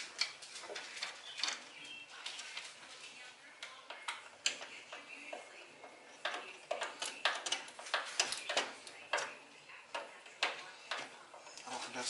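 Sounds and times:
screw ticking and scraping into plastic: 3.6 - 11.7.

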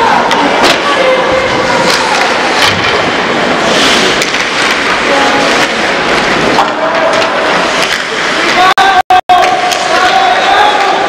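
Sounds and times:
echoing rink noise: 0.0 - 11.0
hockey sticks and puck clacking: 0.0 - 11.0.

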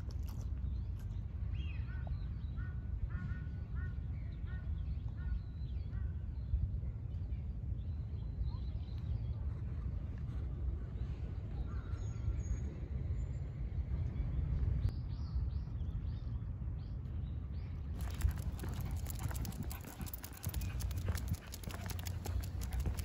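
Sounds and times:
wind rumbling on microphone: 0.0 - 23.0
dog claws clicking on pavement: 18.0 - 23.0.

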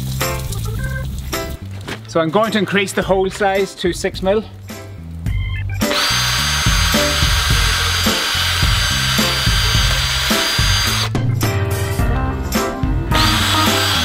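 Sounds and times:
background music: 0.0 - 14.0
cordless drill boring plastic pipe: 5.9 - 11.1, 13.2 - 14.0.

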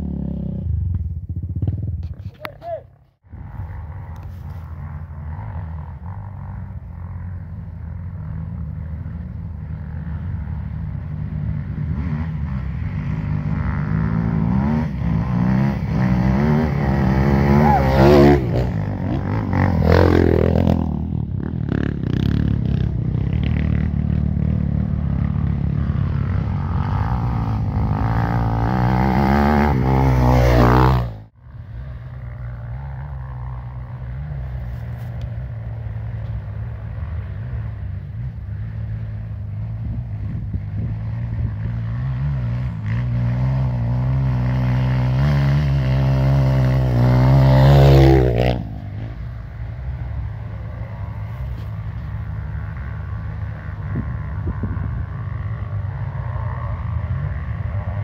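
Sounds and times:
dirt bike engine revving: 3.3 - 35.0, 37.1 - 49.2.

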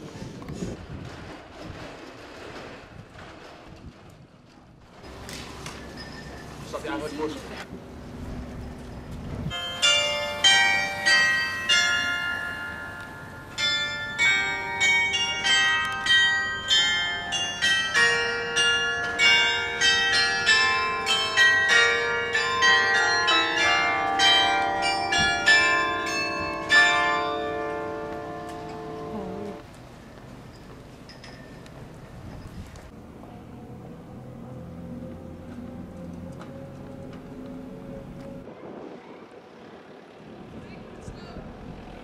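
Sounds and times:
carillon bells playing a melody: 9.5 - 29.6.

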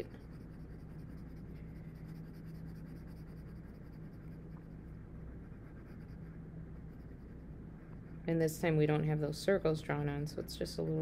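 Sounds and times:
pencil scratching on paper: 0.0 - 7.5
steady low hum: 0.0 - 11.0.

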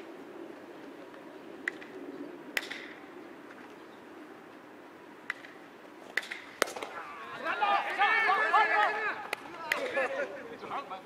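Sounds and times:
outdoor background: 0.0 - 11.0
baseball popping into gloves: 5.2 - 7.0.

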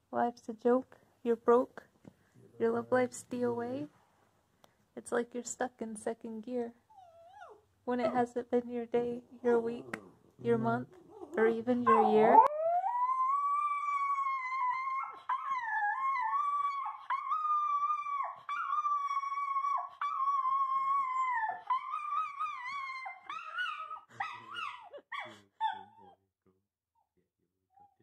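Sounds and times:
dog yelping and whining: 6.9 - 8.2, 11.0 - 26.2
small dog howling: 11.1 - 26.2.

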